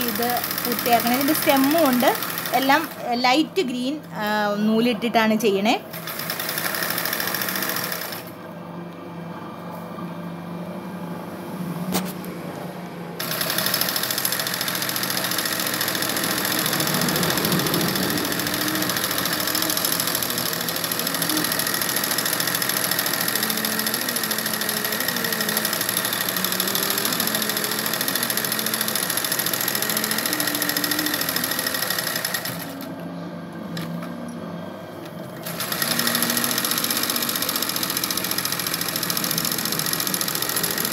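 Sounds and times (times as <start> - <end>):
sewing machine stitching: 0.0 - 3.1, 5.9 - 8.3, 13.2 - 32.9, 35.3 - 40.9.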